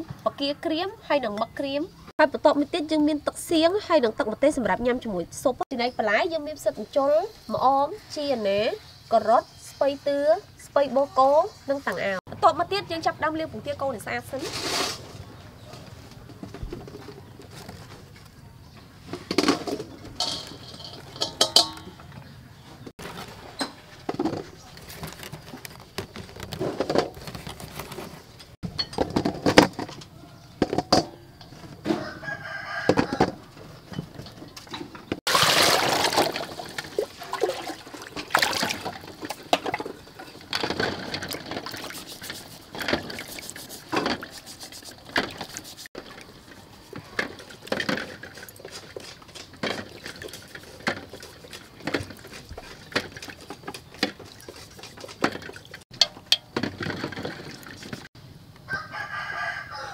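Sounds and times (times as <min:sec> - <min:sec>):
eggs clinking in steel bowl: 0:20.2 - 0:22.0
rooster crowing: 0:31.2 - 0:33.5, 0:58.6 - 0:59.9
water splashing: 0:35.3 - 0:40.0, 0:41.0 - 0:55.8
scouring pad scrubbing: 0:41.4 - 0:46.1.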